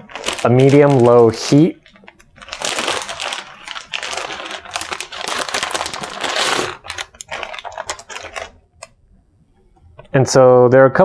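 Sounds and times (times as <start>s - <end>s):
dry kelp sheet crackling: 0.0s - 8.4s
plastic bag crinkling: 0.0s - 9.0s.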